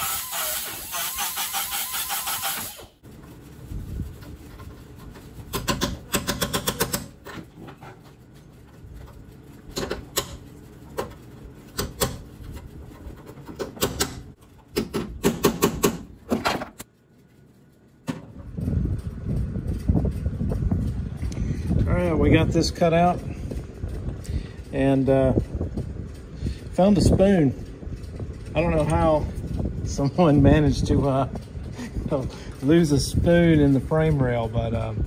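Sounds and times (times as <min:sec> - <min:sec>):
cut-off wheel cutting steel: 0:00.0 - 0:03.0
metallic clicks and knocks: 0:04.6 - 0:08.1, 0:09.0 - 0:16.9.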